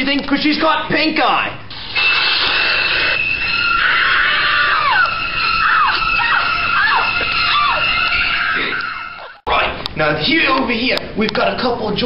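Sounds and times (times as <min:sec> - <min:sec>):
woman screaming: 0:03.2 - 0:09.4.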